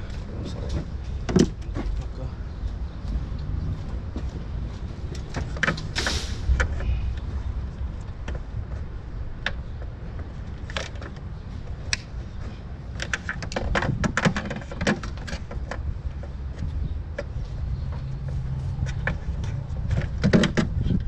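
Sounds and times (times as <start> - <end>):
steady low rumble: 0.0 - 13.0, 15.0 - 21.0.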